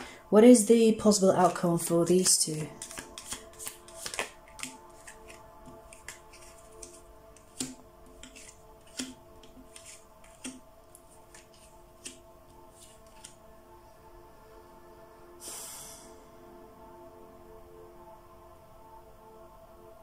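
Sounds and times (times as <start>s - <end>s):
faint background music: 0.0s - 20.0s
cards snapping and tapping: 2.2s - 10.6s, 11.2s - 13.4s.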